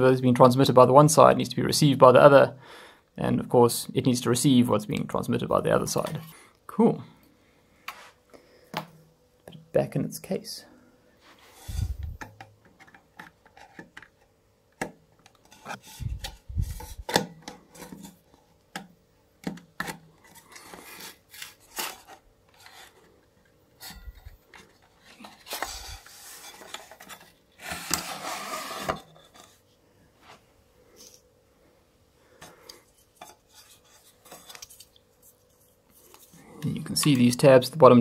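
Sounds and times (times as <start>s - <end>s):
board scraping in casing: 25.2s - 29.5s.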